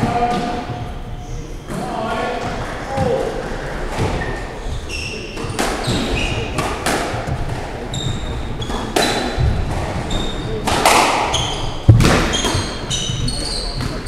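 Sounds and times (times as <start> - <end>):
shoes squeaking on wooden floor: 3.9 - 10.6, 11.2 - 14.0
squash ball cracking off walls: 10.6 - 12.6.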